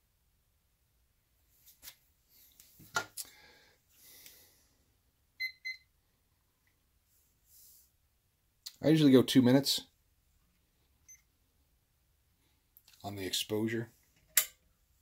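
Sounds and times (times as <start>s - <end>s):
kitchen timer beeps: 5.4s - 5.9s.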